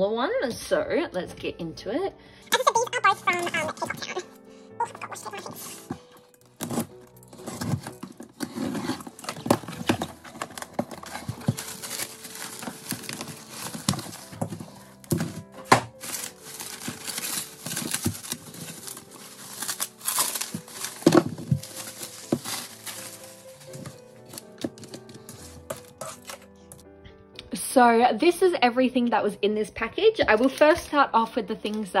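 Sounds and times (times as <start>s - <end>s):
soft piano music: 0.0s - 32.0s
bubble wrap crinkling: 2.6s - 4.4s, 5.0s - 26.8s
knife slitting packing tape: 15.0s - 26.4s.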